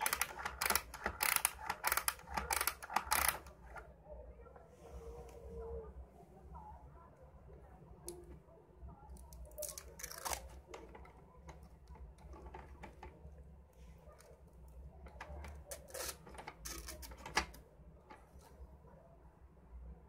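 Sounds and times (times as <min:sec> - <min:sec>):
plastic parts clicking: 0:00.0 - 0:03.8, 0:15.1 - 0:18.3.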